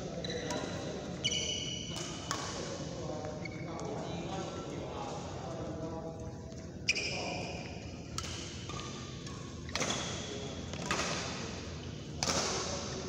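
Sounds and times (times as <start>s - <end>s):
shoes squeaking on court: 0.2s - 2.3s, 3.3s - 4.0s, 6.8s - 7.6s
racket hitting shuttlecock: 1.9s - 2.6s, 8.1s - 11.4s, 12.2s - 12.8s.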